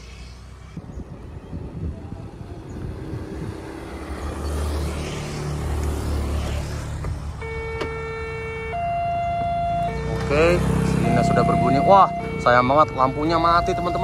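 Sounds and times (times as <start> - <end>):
road traffic rumble: 0.0 - 14.0
level crossing warning tone: 7.4 - 14.0.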